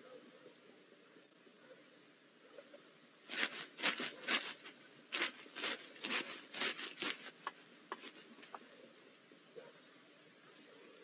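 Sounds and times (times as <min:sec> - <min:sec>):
owl scratching in wood shavings: 0:03.3 - 0:08.3.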